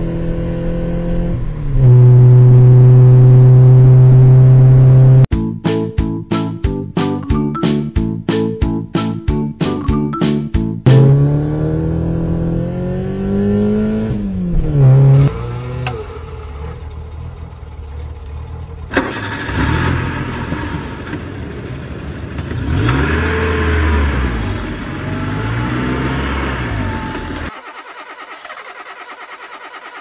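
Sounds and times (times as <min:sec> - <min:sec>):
car engine revving: 0:00.0 - 0:05.3, 0:10.8 - 0:27.6.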